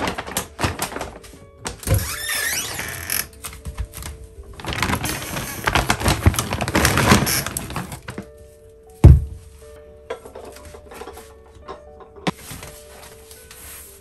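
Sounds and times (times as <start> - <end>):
crinkly plastic rustling: 0.0 - 2.0, 2.7 - 8.7, 12.3 - 14.0
crockery clattering: 10.0 - 12.4.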